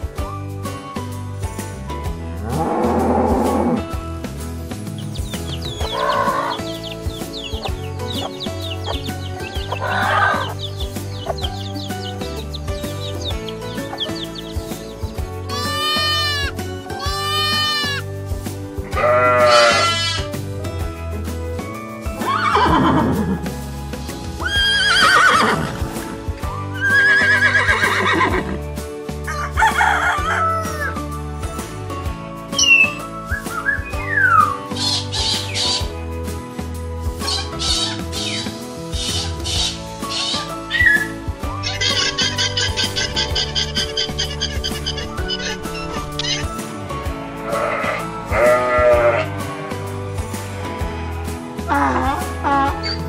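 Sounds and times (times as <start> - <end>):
background music: 0.0 - 53.0
baby chicks peeping: 4.9 - 17.8, 34.8 - 35.9, 41.6 - 46.6
horse whinny: 18.9 - 20.3, 22.2 - 23.5, 24.4 - 25.9, 26.8 - 28.6
rooster crowing: 29.3 - 30.9.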